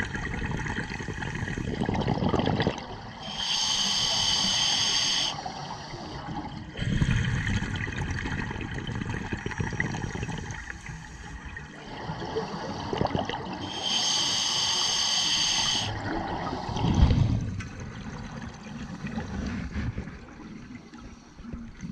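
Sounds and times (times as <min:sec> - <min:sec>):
exhaled bubbles rushing underwater: 0:00.0 - 0:14.4, 0:15.6 - 0:21.9
regulator hissing inhalation: 0:03.2 - 0:06.1, 0:13.6 - 0:16.0.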